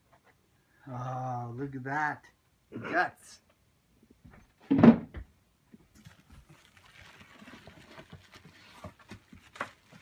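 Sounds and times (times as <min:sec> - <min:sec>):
plastic bag crinkling: 0:05.8 - 0:10.0.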